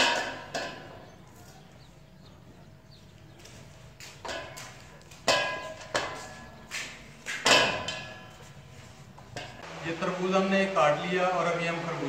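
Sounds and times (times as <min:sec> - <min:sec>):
knife knocking on steel plates: 0:04.2 - 0:08.5.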